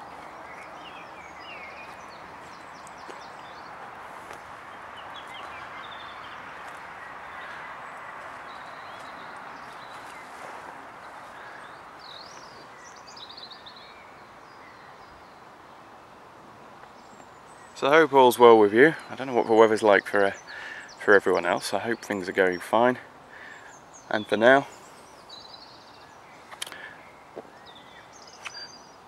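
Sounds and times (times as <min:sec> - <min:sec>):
small birds chirping: 0:00.0 - 0:29.0
steady background hiss: 0:00.0 - 0:29.0.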